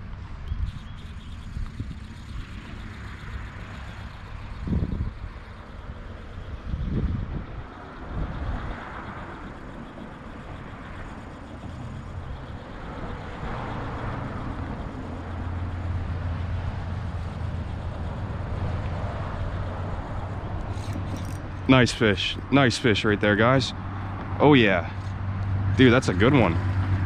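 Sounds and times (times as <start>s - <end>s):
low steady rumble: 0.0s - 27.0s
wind blowing across microphone: 0.0s - 27.0s.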